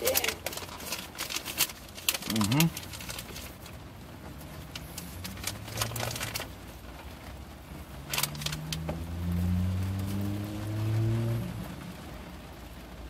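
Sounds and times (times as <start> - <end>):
rustling and clicking handling: 0.0 - 7.4, 8.1 - 9.0
low vehicle engine hum: 0.0 - 13.0.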